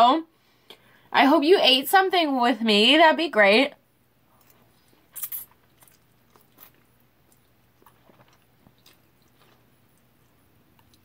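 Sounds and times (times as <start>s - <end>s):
faint chewing and mouth clicks: 4.3s - 11.0s.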